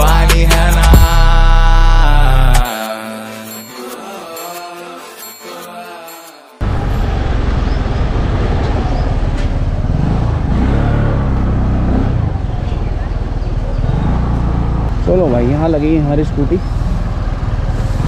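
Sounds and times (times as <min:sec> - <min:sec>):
music: 0:00.0 - 0:06.6.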